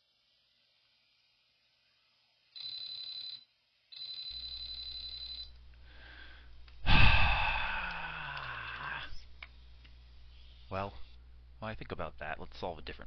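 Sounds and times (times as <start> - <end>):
steady low hum: 4.3 - 13.0.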